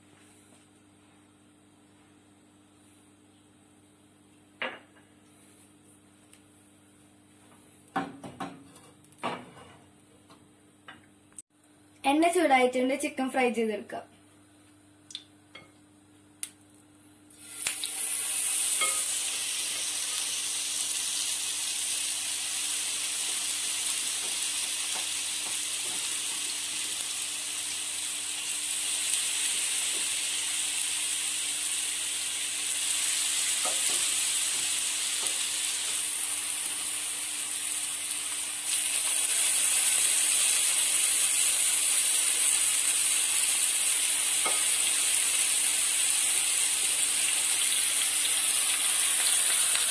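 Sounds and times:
chicken sizzling in a frying pan: 17.4 - 49.9.

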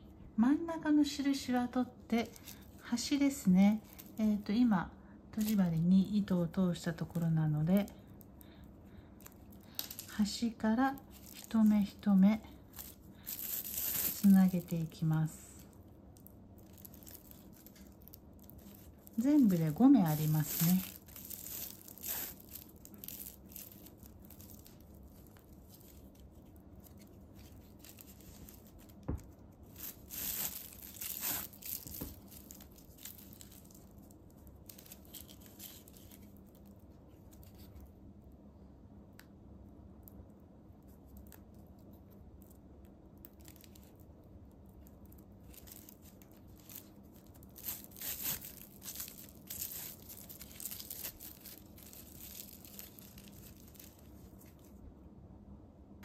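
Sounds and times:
faint steady hum: 0.0 - 56.0
plastic tape crinkling: 1.2 - 4.7, 5.3 - 37.9, 40.8 - 54.9.

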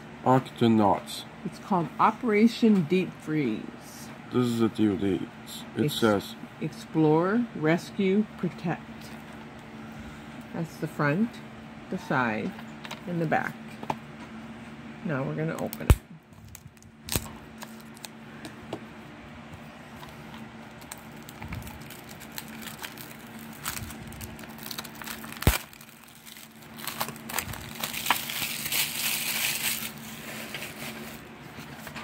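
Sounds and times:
cellophane wrap crinkling and tearing: 15.9 - 18.2, 20.6 - 31.2.

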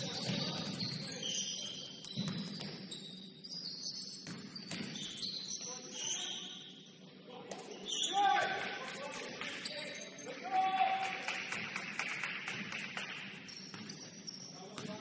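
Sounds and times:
sneakers squeaking on court: 0.0 - 6.8, 13.5 - 15.0.

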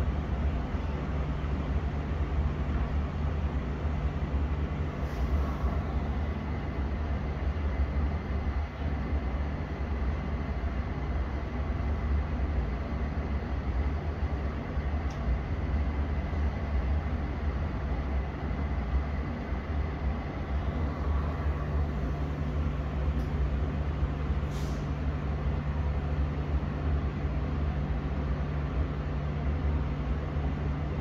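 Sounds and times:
train electrical hum: 0.0 - 31.0
hiss of air: 5.0 - 6.2, 24.4 - 25.1.

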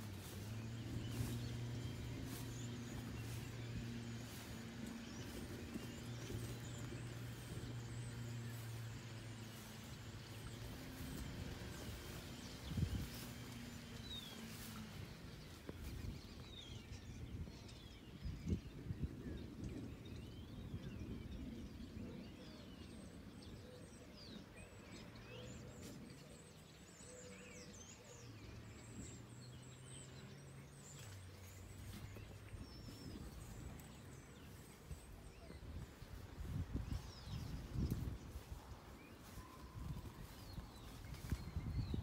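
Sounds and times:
low steady hum: 0.0 - 17.7
leaves and wind rustling: 0.0 - 42.0
small birds chirping: 0.0 - 42.0.

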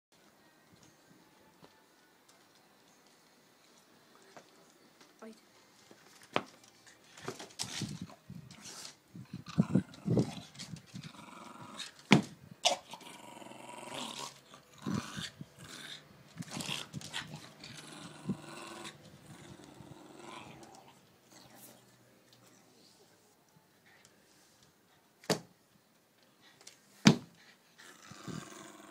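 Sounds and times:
dog growling: 9.4 - 12.0, 12.6 - 21.0, 27.8 - 28.9.

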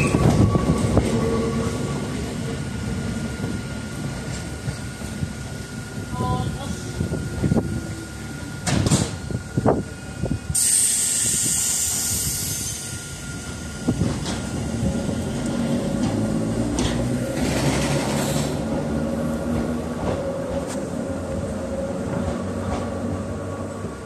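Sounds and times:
train electrical hum: 0.0 - 24.0
compressed air hiss: 10.5 - 13.0.

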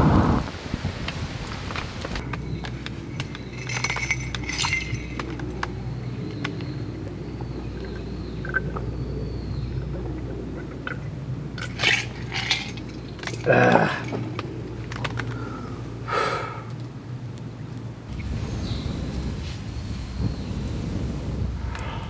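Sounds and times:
campfire crackling: 0.0 - 22.0
low hum: 0.0 - 22.0
glass clinking: 2.2 - 6.1, 10.8 - 15.1.

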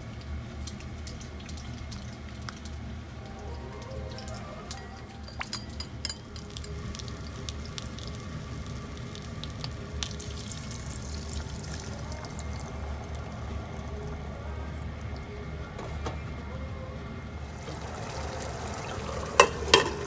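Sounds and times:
steady low hum: 0.0 - 20.0
frying pan hissing and sizzling: 6.4 - 13.9, 17.4 - 20.0.

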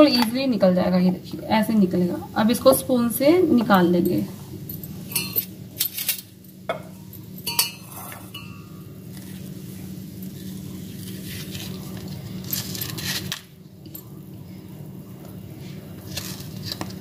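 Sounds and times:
spoon clinking on steel bowl: 5.1 - 5.5, 6.7 - 8.8.

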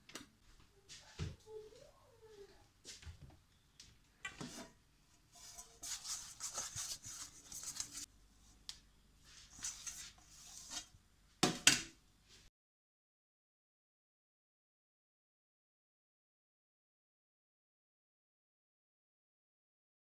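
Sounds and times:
fingers rubbing metal tin: 5.4 - 8.1.

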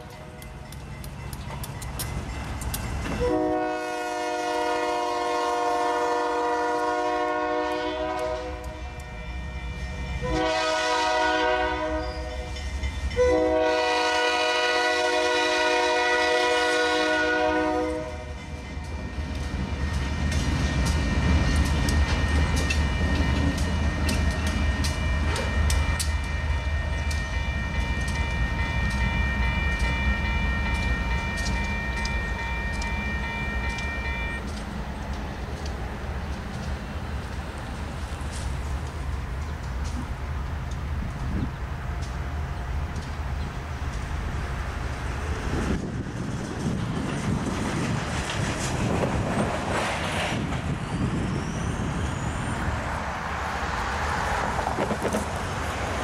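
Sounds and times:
crossing bell ringing: 0.0 - 3.8, 8.5 - 13.8, 18.1 - 34.8
locomotive engine and wheels rumbling: 0.0 - 56.0
locomotive air horn blasts: 3.2 - 9.2, 10.2 - 18.3.

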